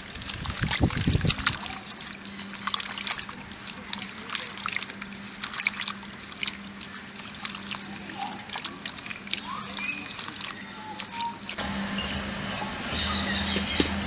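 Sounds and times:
water sloshing in metal pan: 0.0 - 12.2
animal chirps: 9.2 - 13.9.

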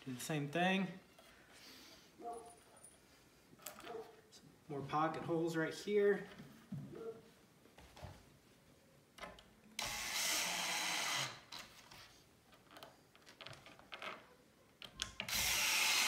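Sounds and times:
cordless drill driving screws: 9.8 - 11.7, 15.2 - 16.0.

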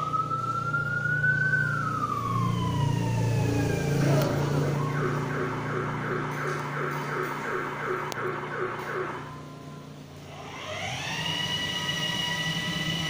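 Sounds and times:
siren wail: 0.0 - 13.0
toy car motors humming: 10.2 - 13.0.

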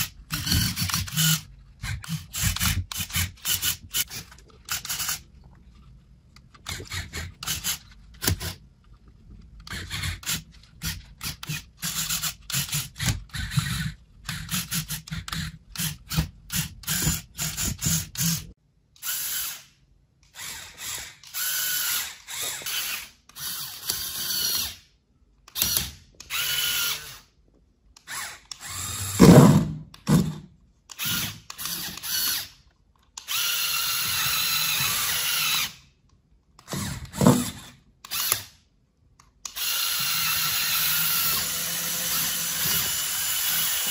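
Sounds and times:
toy electric motors whirring: 0.0 - 5.2, 6.6 - 8.6, 9.6 - 19.7, 20.3 - 24.8, 30.9 - 32.6, 33.2 - 35.8, 36.6 - 38.6, 39.4 - 43.9.

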